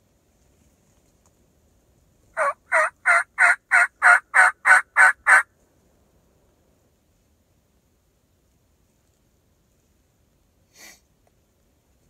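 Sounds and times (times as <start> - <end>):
wild turkey yelps: 2.4 - 5.5.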